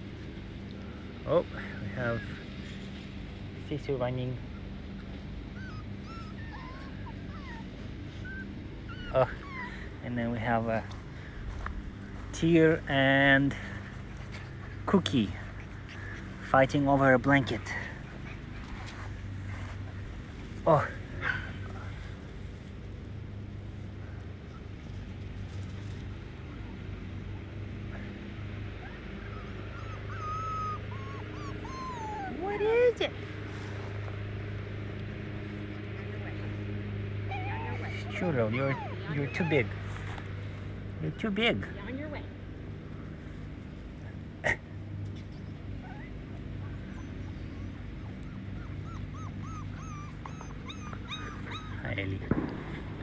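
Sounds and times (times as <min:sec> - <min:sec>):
low mechanical hum: 0:00.0 - 0:53.0
puppy whimpering: 0:04.4 - 0:10.7, 0:28.7 - 0:33.2, 0:37.2 - 0:40.4, 0:44.4 - 0:52.4.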